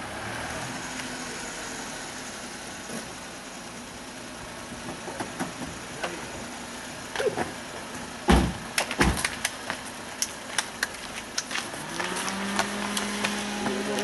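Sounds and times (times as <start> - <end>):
van engine idling: 0.0 - 14.0
clicks and scuffs: 8.7 - 14.0.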